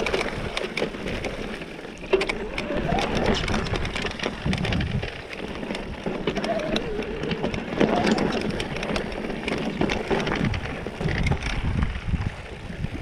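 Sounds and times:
bike rattling: 0:00.0 - 0:13.0
tyres crunching over loose stones: 0:00.0 - 0:13.0
wind on microphone: 0:02.1 - 0:13.0.

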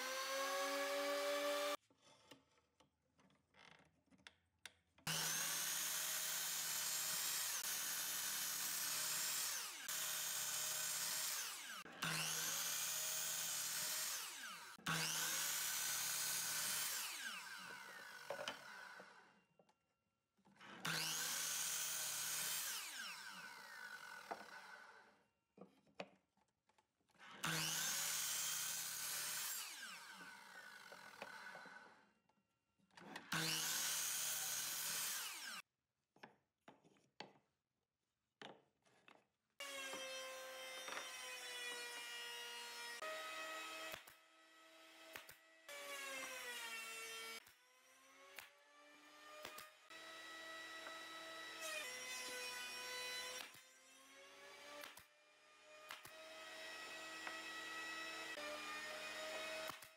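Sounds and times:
miter saw cutting wood: 0:00.0 - 0:01.8, 0:05.1 - 0:19.4, 0:20.7 - 0:25.1, 0:27.3 - 0:32.0, 0:33.2 - 0:35.6, 0:39.6 - 0:59.9.

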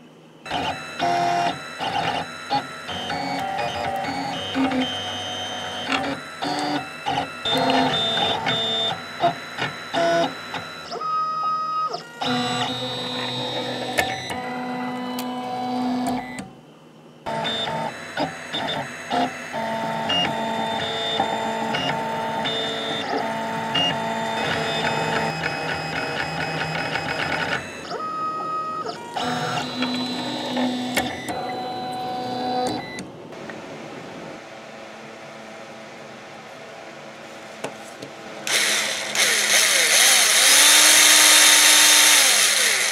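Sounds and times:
stepper motors whining: 0:38.5 - 0:42.9.

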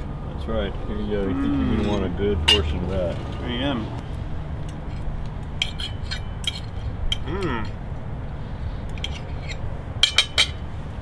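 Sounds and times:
cutlery clinking on ceramic plates: 0:09.0 - 0:10.6.

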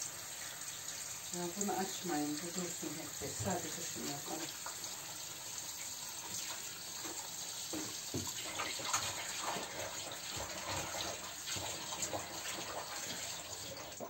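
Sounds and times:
tap running into sink: 0:01.5 - 0:05.0, 0:06.3 - 0:14.0.

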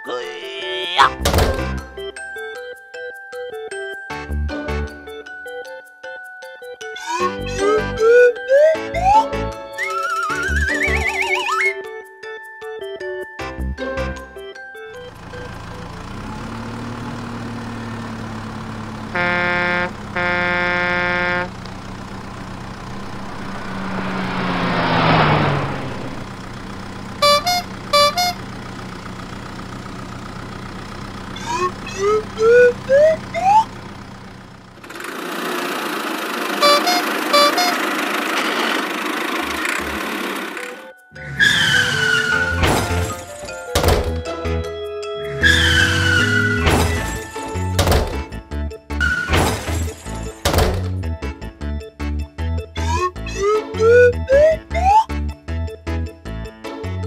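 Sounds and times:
engine hum: 0:14.9 - 0:51.2, 0:52.8 - 0:55.3
horn honks: 0:19.0 - 0:21.9, 0:27.2 - 0:28.6, 0:36.6 - 0:38.2
quick rising glides: 0:22.6 - 0:27.0
whoosh: 0:22.8 - 0:26.9.

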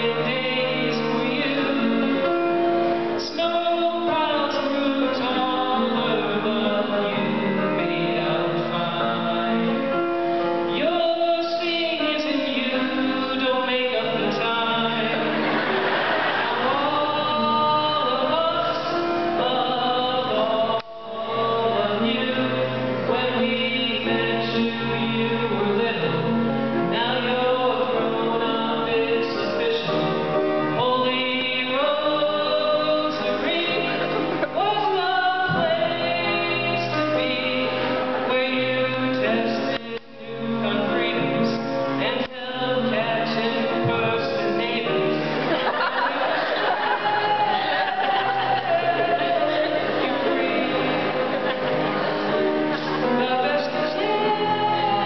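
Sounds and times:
person singing: 0:00.0 - 0:10.1, 0:10.7 - 0:15.8, 0:16.5 - 0:55.0
instrumental accompaniment: 0:00.0 - 0:55.0.

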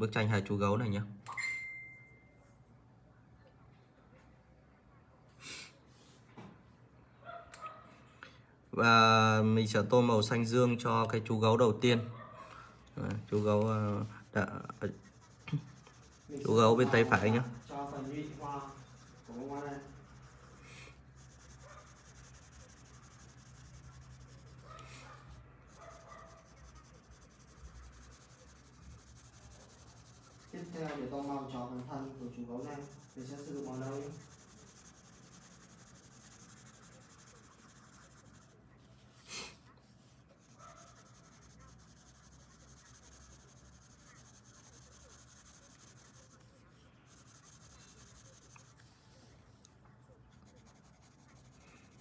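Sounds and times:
pencil scratching on paper: 0:12.4 - 0:49.6, 0:50.2 - 0:52.0.

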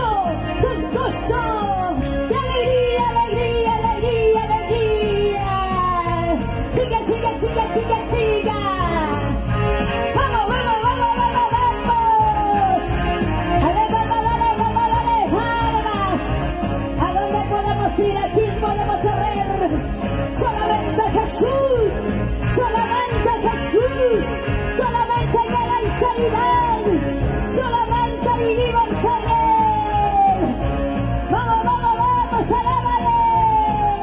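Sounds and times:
live band praise music with singing: 0:00.0 - 0:34.0.

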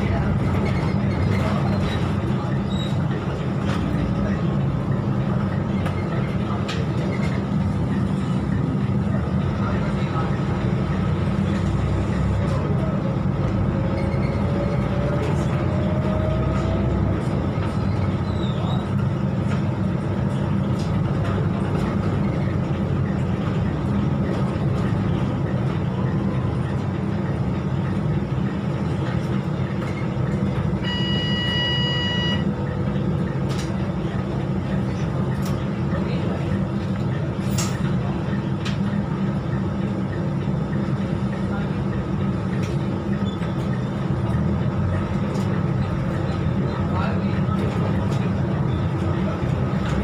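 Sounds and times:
bus engine drone: 0:00.0 - 0:50.0
short electronic beep: 0:30.8 - 0:32.5.

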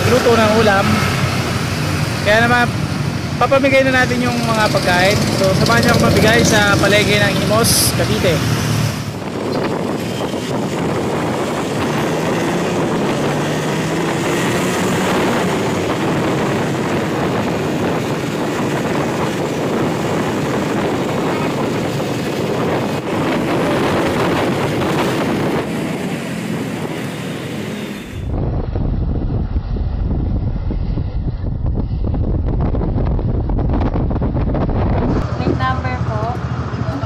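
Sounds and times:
motorcycle engine running: 0:00.0 - 0:27.0
wind rushing over microphone: 0:00.0 - 0:37.0.

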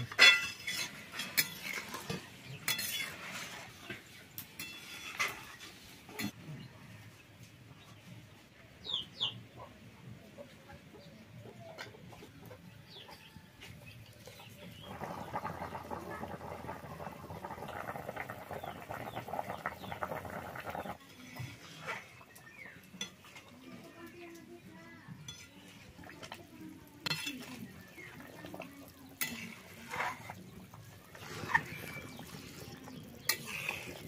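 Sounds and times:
spatula scraping wok: 0:00.1 - 0:06.4, 0:27.0 - 0:34.0
curry bubbling and spitting: 0:14.7 - 0:21.0, 0:25.8 - 0:34.0.

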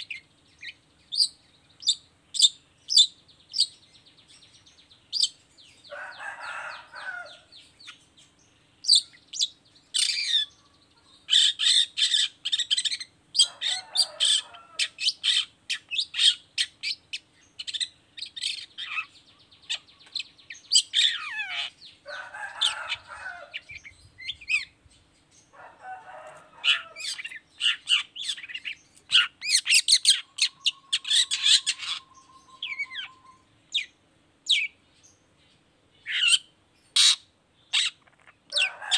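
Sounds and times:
bird chattering and trilling: 0:00.0 - 0:35.2, 0:36.0 - 0:38.8
harsh rasping bird calls: 0:08.8 - 0:24.8, 0:25.4 - 0:34.8, 0:36.0 - 0:38.9
long steady bird whistle: 0:29.5 - 0:33.6.

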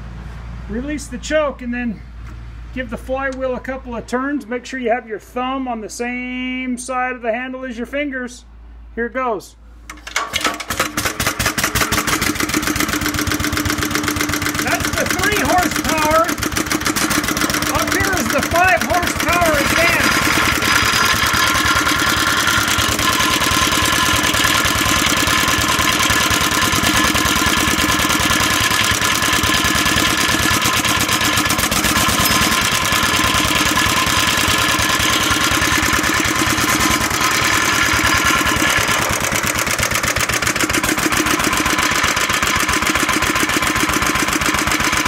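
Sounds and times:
stationary engine running: 0:10.0 - 0:45.0.

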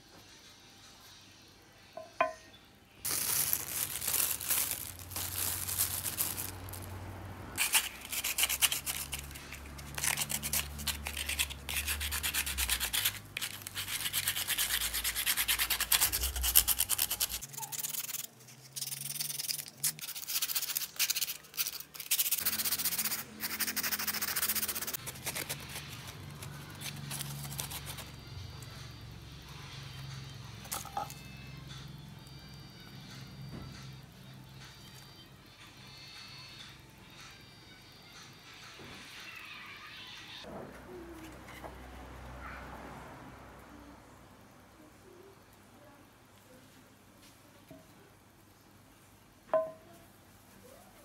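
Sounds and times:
sandpaper rubbing on clay: 0:07.6 - 0:28.2.

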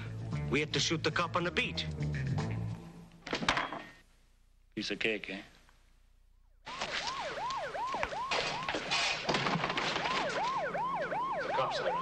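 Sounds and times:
emergency siren yelping: 0:06.7 - 0:12.0
higher siren: 0:06.7 - 0:12.0.

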